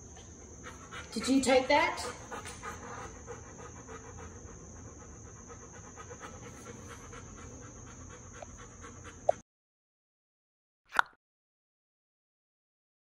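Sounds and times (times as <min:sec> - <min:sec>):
dog panting: 0:00.2 - 0:09.4.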